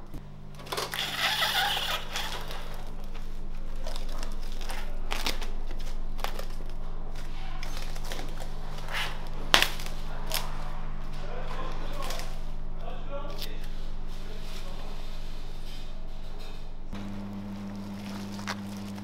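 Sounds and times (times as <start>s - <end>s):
cling film crinkling: 0.0s - 12.6s, 17.0s - 19.0s
low hum: 0.0s - 19.0s.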